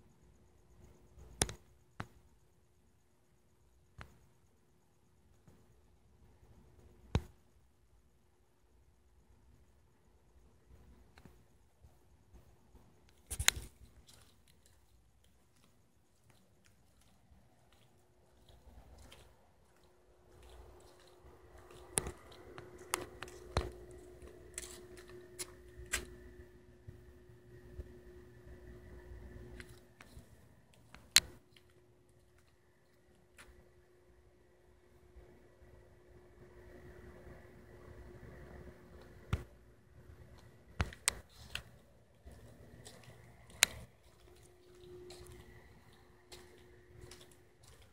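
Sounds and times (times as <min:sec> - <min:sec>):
faint steady hum: 0:00.0 - 0:47.9
sharp clicks: 0:40.3 - 0:41.7.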